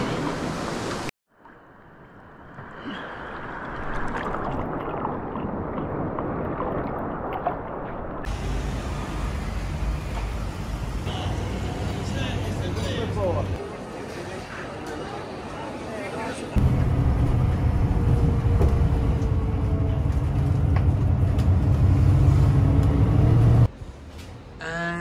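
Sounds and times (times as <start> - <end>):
surf and wind: 0.0 - 7.6
muffled water lapping and sloshing: 0.0 - 8.3
street ambience: 8.2 - 25.0.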